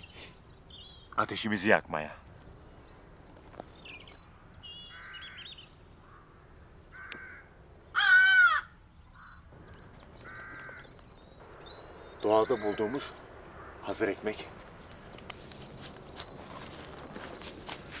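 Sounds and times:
crow cawing: 4.8s - 11.3s, 12.2s - 14.1s.

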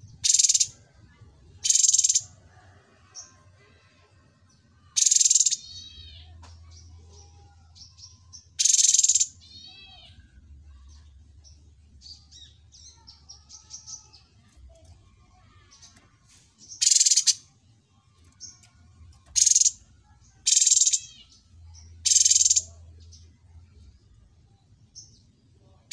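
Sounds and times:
bird chirps and twitters: 0.0s - 0.9s, 1.6s - 2.3s, 4.8s - 25.4s
songbird harsh rasping calls: 0.2s - 0.7s, 1.6s - 2.2s, 5.0s - 5.7s, 8.6s - 9.4s, 16.8s - 17.4s, 19.4s - 19.8s, 20.5s - 21.2s, 22.1s - 22.6s.

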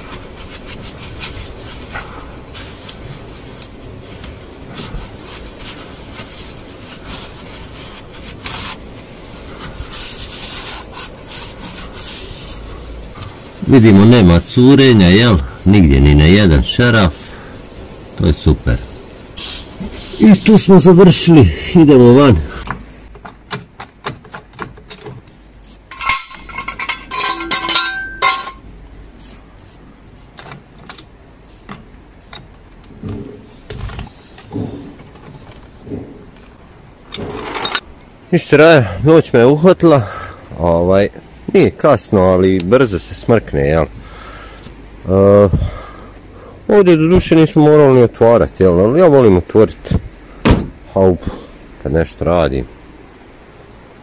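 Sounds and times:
gloved hand rubbing and scuffing: 0.0s - 14.0s, 18.8s - 21.1s, 25.2s - 26.8s, 28.1s - 30.7s
short hiss: 19.4s - 20.2s
metal jack stand clanking: 25.9s - 28.6s.

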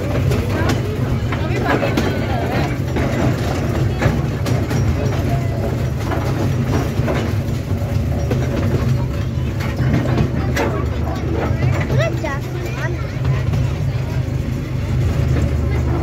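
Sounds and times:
toy train rumbling: 0.0s - 16.0s
train wheels clacking on track: 0.0s - 16.0s.

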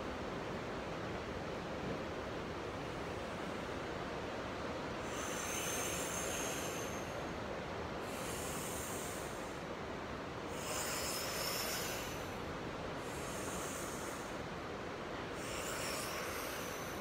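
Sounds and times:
woman breathing: 5.0s - 9.8s, 10.4s - 14.6s, 15.3s - 17.0s.

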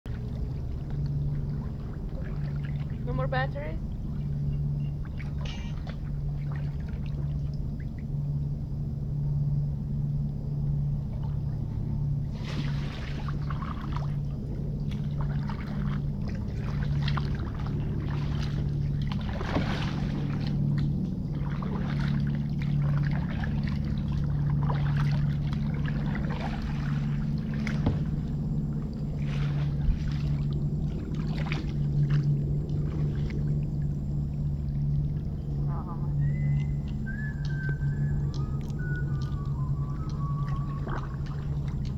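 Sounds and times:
paddle splashing in water: 0.1s - 8.2s, 10.9s - 41.9s
steady low hum: 0.1s - 41.9s
water trickling: 12.4s - 41.9s.

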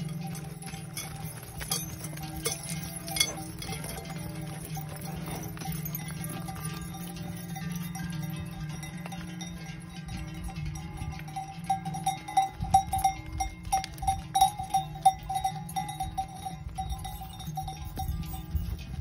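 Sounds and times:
cowbells clanging: 0.0s - 19.0s.

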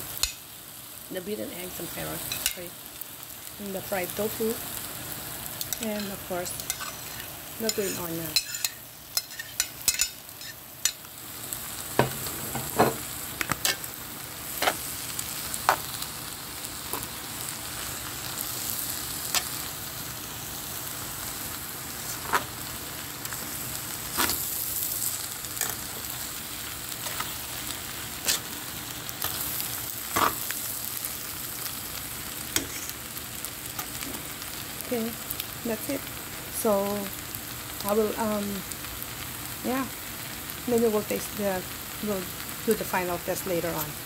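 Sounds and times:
noodles sizzling in a pan: 0.0s - 44.0s
metal tongs clicking against pan: 0.2s - 0.4s, 5.6s - 11.0s.

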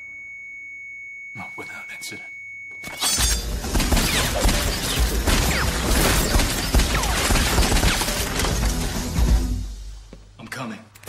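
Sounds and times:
rapid gunfire: 3.6s - 9.0s.

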